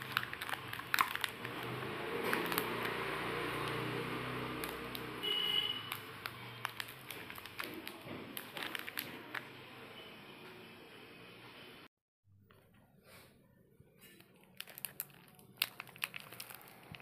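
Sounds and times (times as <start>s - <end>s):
plastic wrapper crinkling: 0.0s - 9.5s, 14.1s - 17.0s.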